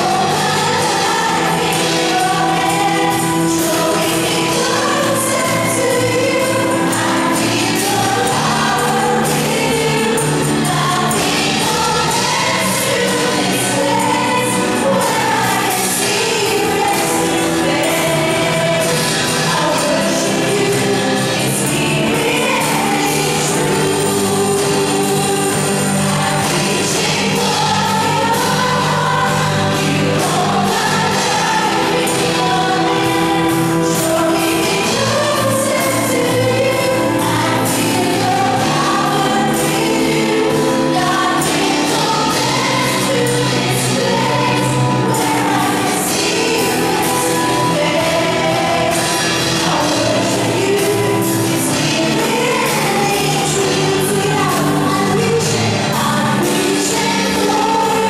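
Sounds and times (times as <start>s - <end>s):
band playing worship music: 0.0s - 58.0s
women singing together: 0.0s - 58.0s.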